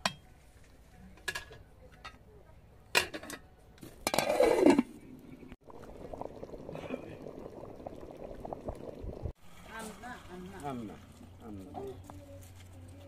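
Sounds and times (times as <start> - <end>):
metal ladle and pots clinking: 2.9 - 5.0
scraping clatter of pots: 3.0 - 5.1
stew bubbling softly: 5.1 - 9.8.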